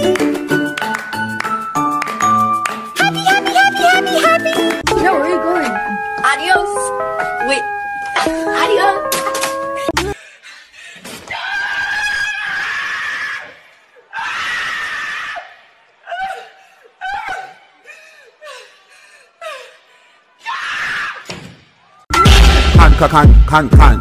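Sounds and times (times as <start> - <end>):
woman wailing cries: 8.2 - 10.2.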